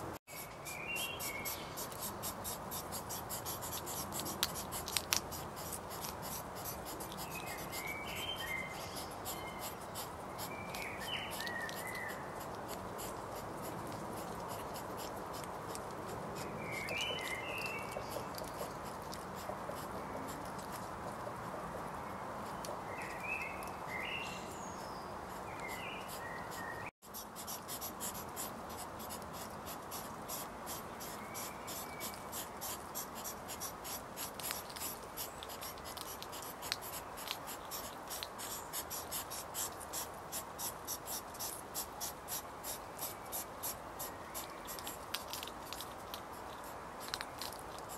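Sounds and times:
background hiss: 0:00.0 - 0:19.4, 0:20.0 - 0:47.9
short chirping bird calls: 0:07.2 - 0:12.3.

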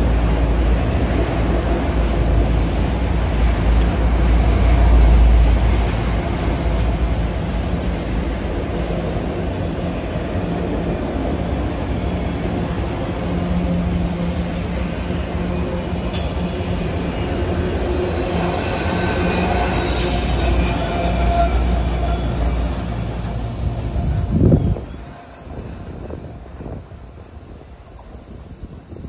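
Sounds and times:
train wheels rumbling: 0:00.0 - 0:29.0
high-pitched wheel squeal: 0:17.9 - 0:27.0.

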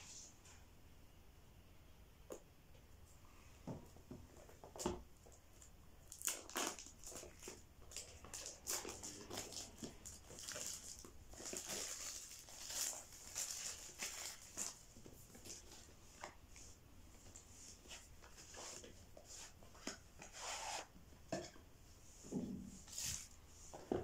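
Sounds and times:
plastic packaging crinkling: 0:06.1 - 0:15.9.

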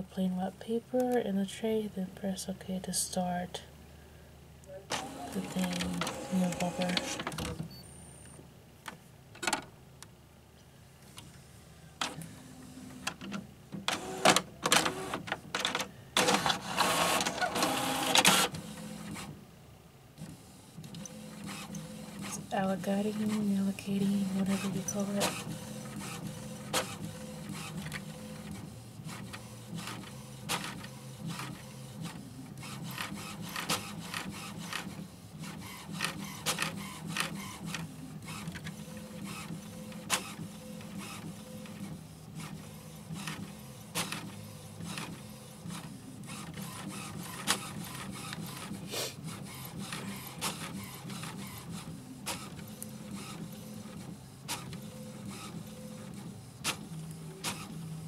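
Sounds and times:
print carriage clicks and ticks: 0:04.9 - 0:07.6, 0:13.0 - 0:19.3
printer motor hum: 0:04.9 - 0:07.7, 0:12.0 - 0:19.4, 0:24.1 - 0:58.0.

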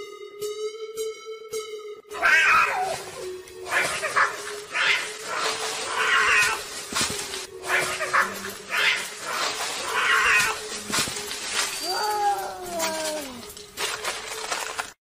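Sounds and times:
cat yowling: 0:02.1 - 0:06.6, 0:07.7 - 0:10.6, 0:11.8 - 0:13.4.

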